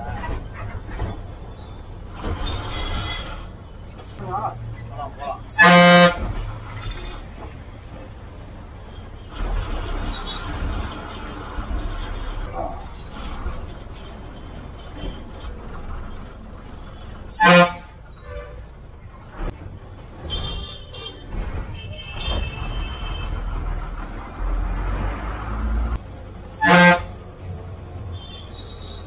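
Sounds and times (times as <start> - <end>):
bus engine rumble: 0.0 - 29.0
bus horn blasts: 5.5 - 7.2, 17.3 - 18.7, 20.3 - 23.4, 26.5 - 27.4.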